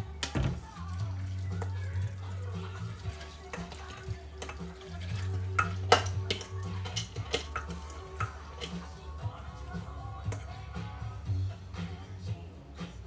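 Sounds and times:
background music: 0.0 - 13.0
metal bowl and spoon clinking: 1.0 - 11.0.

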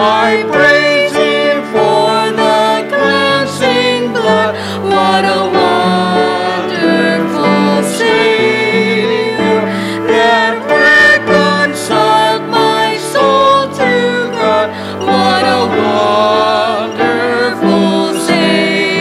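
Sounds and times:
instrumental accompaniment: 0.0 - 19.0
woman singing a hymn: 0.0 - 19.0.

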